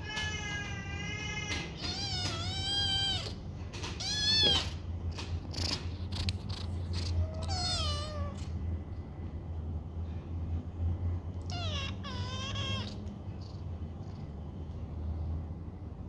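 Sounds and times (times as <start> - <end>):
kitten meowing: 0.0 - 3.4, 4.0 - 4.8, 7.2 - 8.5, 11.5 - 13.1.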